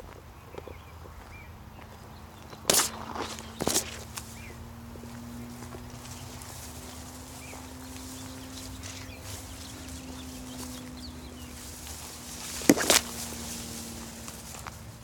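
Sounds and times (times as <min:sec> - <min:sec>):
footsteps through dry grass: 0:00.0 - 0:15.0
loud sharp crackle: 0:02.6 - 0:04.1.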